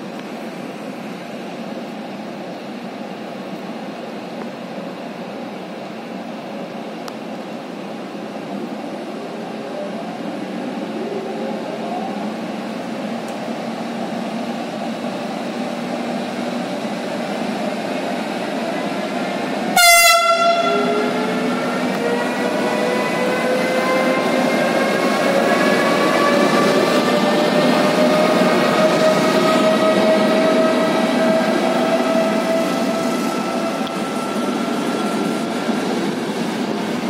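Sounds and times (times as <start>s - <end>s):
train running noise: 0.0s - 37.0s
whine rising in pitch: 9.6s - 12.6s
train horn blast: 19.7s - 22.3s.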